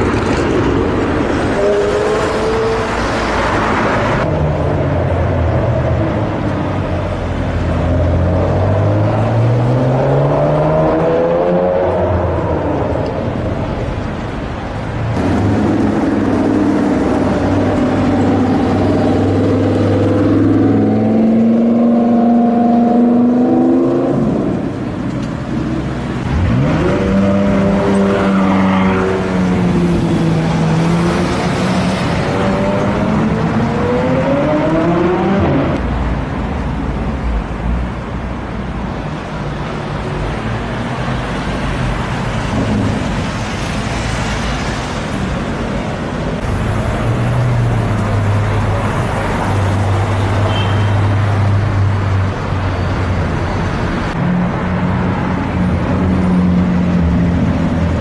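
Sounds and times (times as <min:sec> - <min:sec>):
car engines accelerating: 0:00.0 - 0:50.4.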